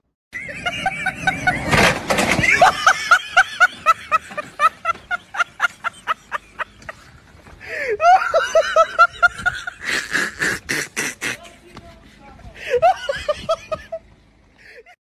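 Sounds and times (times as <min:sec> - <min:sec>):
person laughing: 0:00.4 - 0:14.0.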